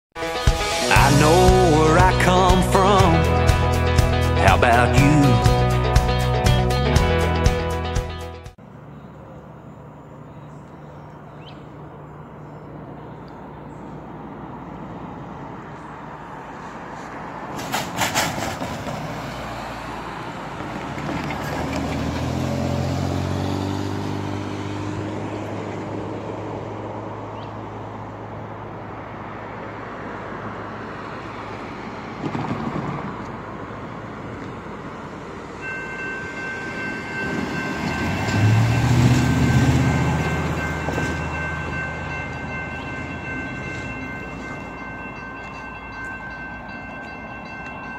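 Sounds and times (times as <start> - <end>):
crossing warning bells ringing: 0.2 - 6.2, 33.9 - 47.9
road traffic passing: 0.2 - 47.9
loud low drone: 0.5 - 8.2
vehicle clatter over crossing: 16.9 - 29.3, 30.3 - 47.0.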